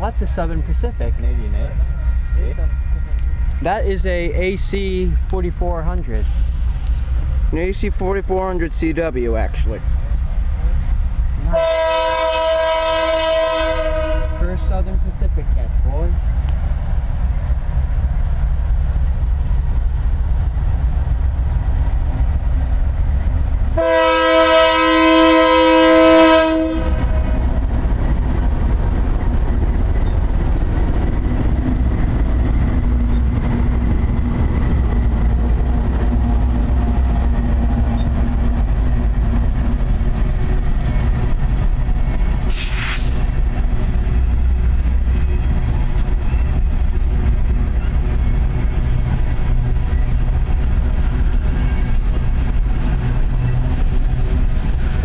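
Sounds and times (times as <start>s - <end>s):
freight train rumbling on rails: 0.0s - 55.0s
train air horn chord: 11.5s - 14.6s, 23.8s - 27.4s
brief hiss: 42.5s - 43.3s.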